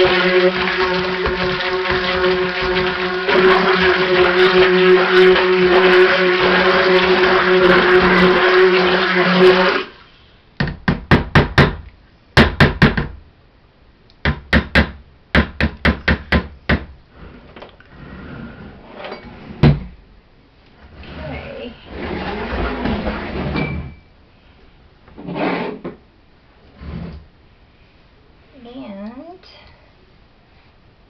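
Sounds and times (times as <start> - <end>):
stick blender running: 0.0 - 9.9.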